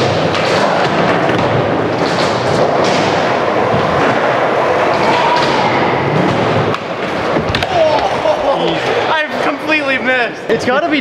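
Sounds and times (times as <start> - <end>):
skateboard clacks and knocks: 0.0 - 8.2
skateboard wheels rolling on concrete: 0.0 - 9.4.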